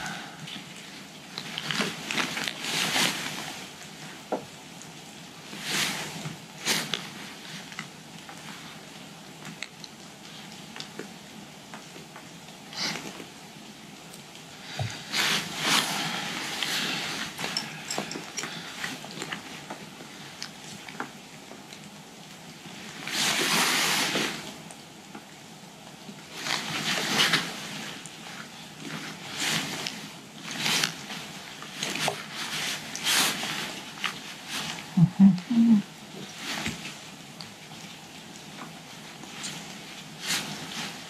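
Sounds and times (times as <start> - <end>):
nylon straps rustling and scraping: 1.4 - 3.7, 14.8 - 19.7, 26.4 - 34.9, 39.2 - 41.0.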